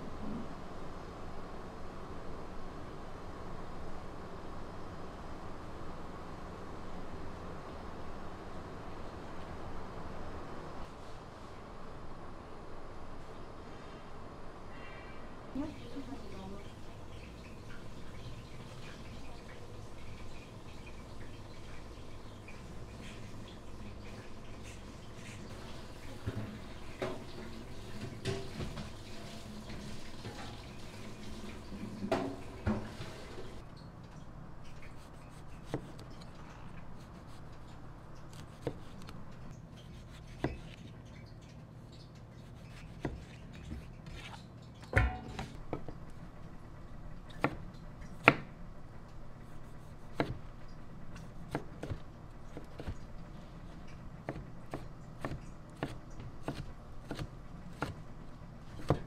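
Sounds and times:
knife knocking on cutting board: 45.0s - 45.6s.

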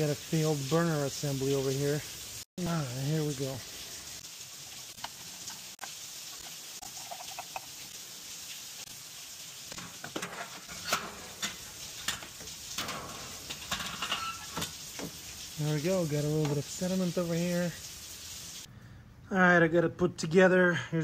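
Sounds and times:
steady hiss: 0.0s - 18.7s.

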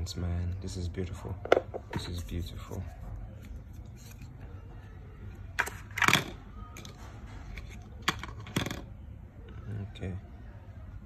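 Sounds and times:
plastic clatter: 1.4s - 2.2s, 5.6s - 8.9s.

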